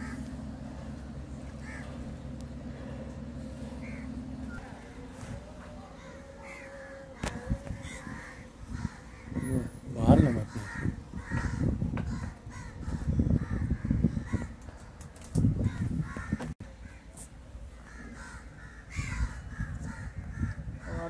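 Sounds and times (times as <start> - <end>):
crows cawing: 0.0 - 0.3, 1.5 - 2.0, 3.7 - 4.2, 5.9 - 14.7, 15.6 - 17.1, 17.8 - 21.0
low rumble: 0.0 - 16.6.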